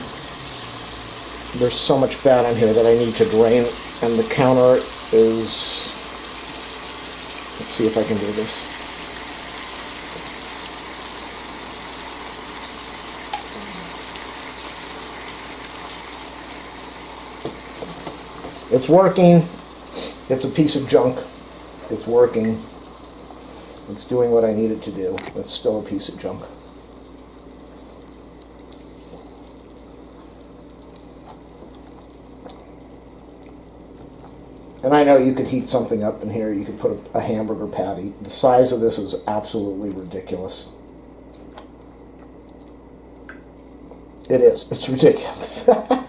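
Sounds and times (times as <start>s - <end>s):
meat sizzling on a grill: 0.0s - 36.8s
fat crackling: 24.9s - 34.9s.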